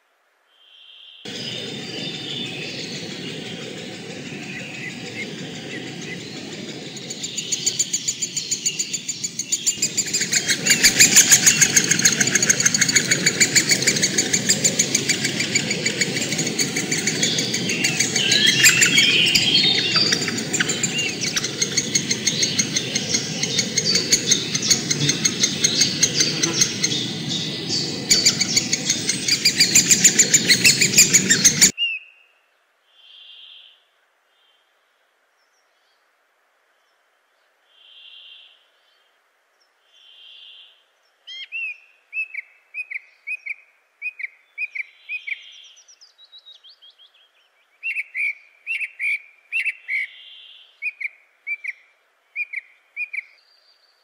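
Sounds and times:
woodpecker nestlings begging calls: 0:01.3 - 0:31.7.

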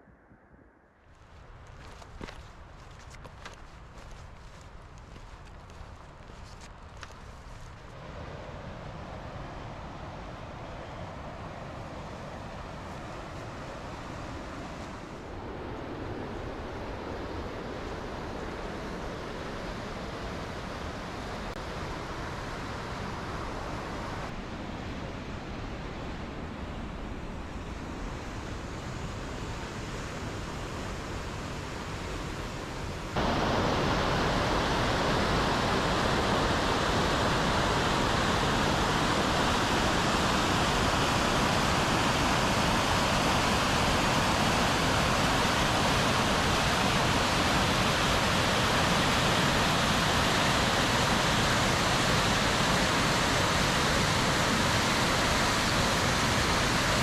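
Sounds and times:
river rushing over rapids: 0:27.6 - 0:57.0
small waterfall: 0:28.5 - 0:57.0.

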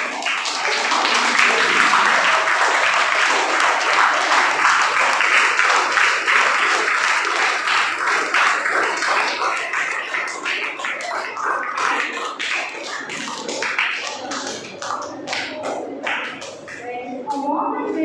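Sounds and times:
children applauding: 0:00.0 - 0:16.9.

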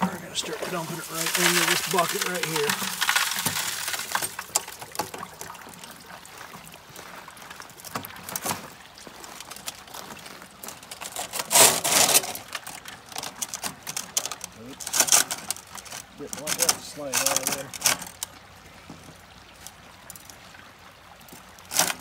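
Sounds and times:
water rushing into bucket: 0:00.0 - 0:10.1.

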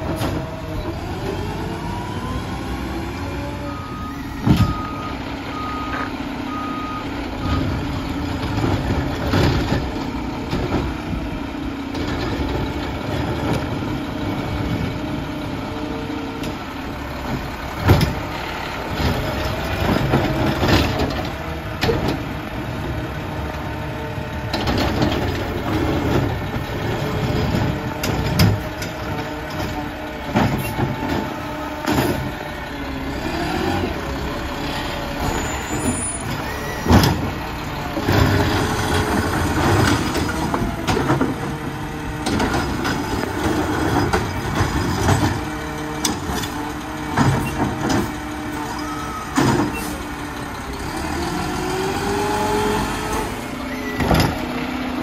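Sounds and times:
garbage truck running: 0:00.0 - 0:55.0.

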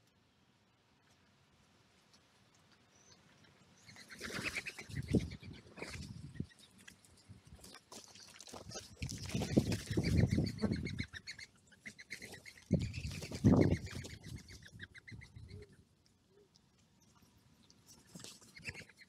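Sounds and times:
birds calling harsh notes: 0:09.2 - 0:15.8.

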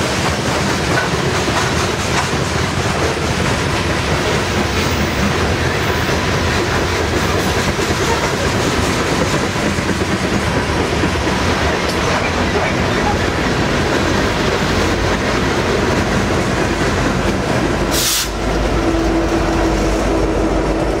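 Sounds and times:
train wheels clattering on rail: 0:00.0 - 0:21.0
high hiss: 0:17.9 - 0:18.4.

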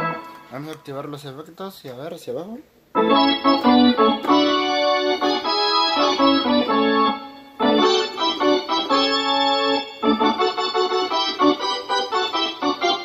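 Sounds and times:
synthesizer organ chords: 0:00.0 - 0:00.6, 0:03.0 - 0:13.0.

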